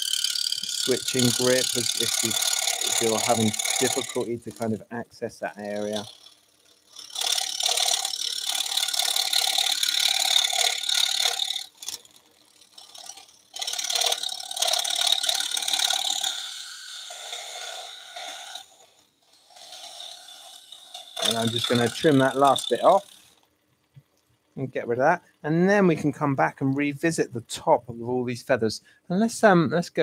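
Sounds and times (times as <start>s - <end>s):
scroll saw cutting wood: 0.0s - 23.5s.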